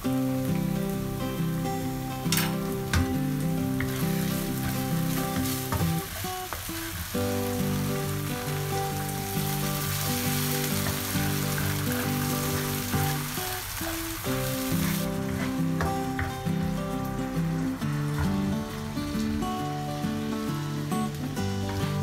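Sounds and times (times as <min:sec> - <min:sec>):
background music: 0:00.0 - 0:22.0
sauce sizzling in a wok: 0:00.0 - 0:22.0
water pouring: 0:02.2 - 0:15.3
wooden spatula scraping a wok: 0:03.7 - 0:07.5, 0:09.5 - 0:16.1.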